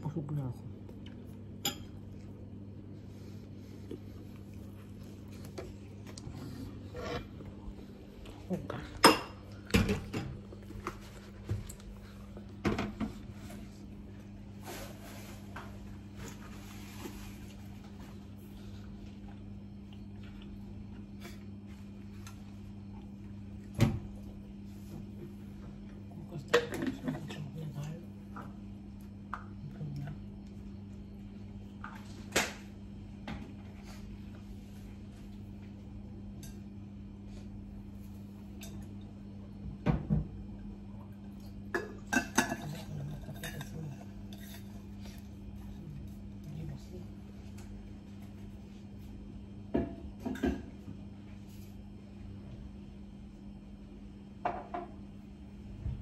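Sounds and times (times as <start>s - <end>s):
steady low hum: 0.0s - 56.0s
dishes clinking and knocking: 8.9s - 10.5s, 41.7s - 44.6s, 54.4s - 55.0s.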